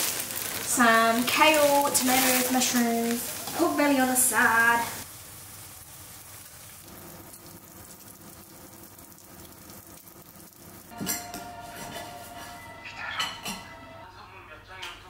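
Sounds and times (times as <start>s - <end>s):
vegetables sizzling in a pan: 0.0s - 11.1s
woman's voice: 0.7s - 5.0s.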